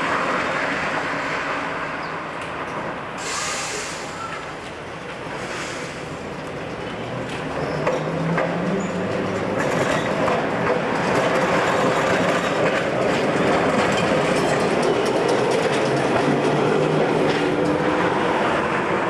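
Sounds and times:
tram passing: 0.0s - 19.0s
steel wheels clicking over rail joints: 4.3s - 18.0s.

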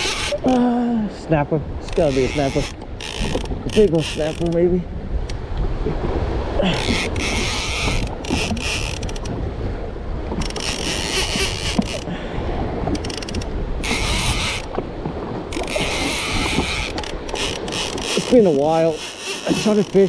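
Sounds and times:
fishing reel gears whirring: 0.0s - 0.5s, 1.9s - 4.6s, 6.8s - 9.3s, 10.4s - 12.0s, 13.0s - 14.7s, 15.5s - 20.0s
rumble of wind and chop: 0.0s - 20.0s
wind buffeting microphone: 0.0s - 20.0s.

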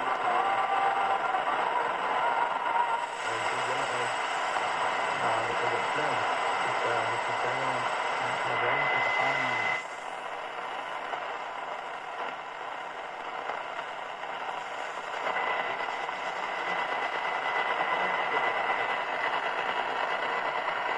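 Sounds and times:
faint radio voice: 0.0s - 10.0s, 15.2s - 19.4s
high radio whistle: 0.0s - 10.1s, 12.9s - 20.9s
radio static: 0.0s - 20.9s.

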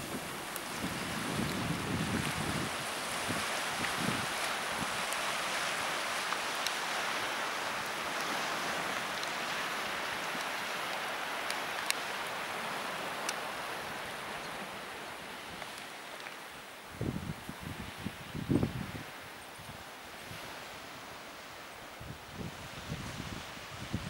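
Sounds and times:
surf rushing on rocky shore: 0.0s - 24.0s
wind: 0.0s - 24.0s
faint clicks: 10.3s - 12.1s, 13.2s - 13.5s.

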